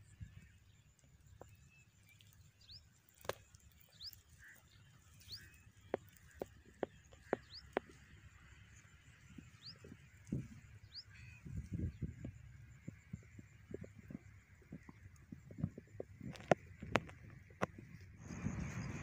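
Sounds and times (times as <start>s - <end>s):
bird chirping: 0.0s - 12.2s.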